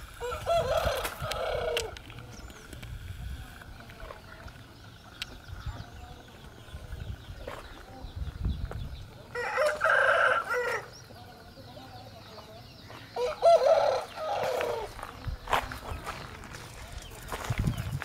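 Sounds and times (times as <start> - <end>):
rooster crowing: 0.2 - 1.9, 9.3 - 10.9, 13.2 - 14.9.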